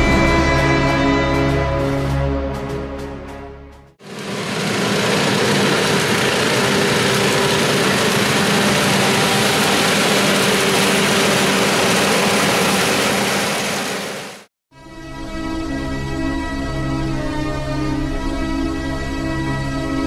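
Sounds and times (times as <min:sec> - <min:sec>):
tractor engine drone: 0:04.0 - 0:14.5
forage harvester chopping: 0:04.1 - 0:14.4.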